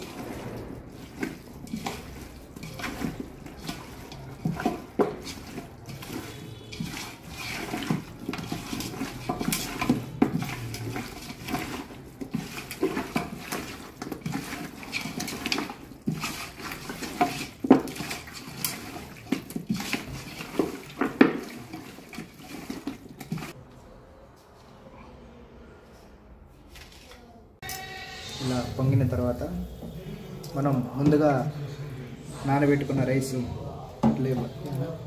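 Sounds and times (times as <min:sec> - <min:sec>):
hand squelching wet chicken: 0:00.0 - 0:23.6.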